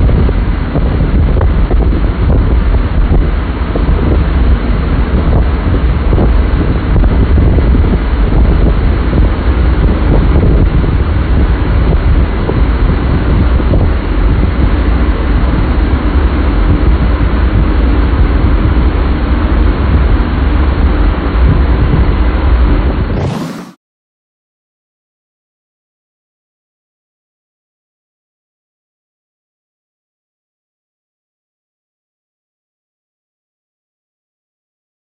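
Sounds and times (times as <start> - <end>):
fan wind blasting microphone: 0.0 - 23.8.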